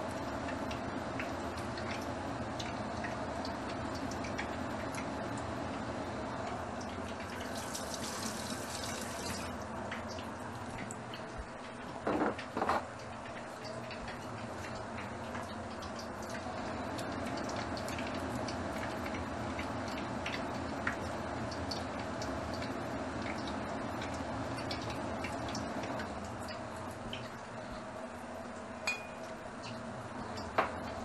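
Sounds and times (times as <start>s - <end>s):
oil sizzling in a wok: 6.9s - 9.6s.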